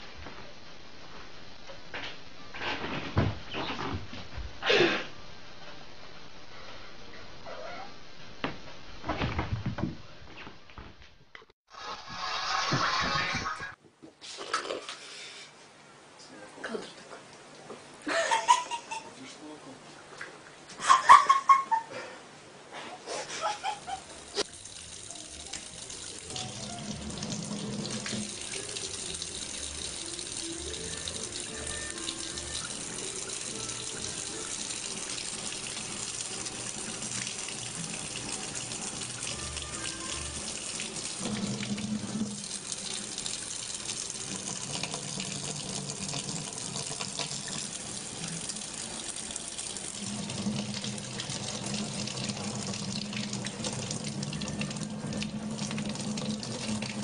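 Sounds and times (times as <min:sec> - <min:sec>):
faucet water running into sink: 0:23.9 - 0:57.0.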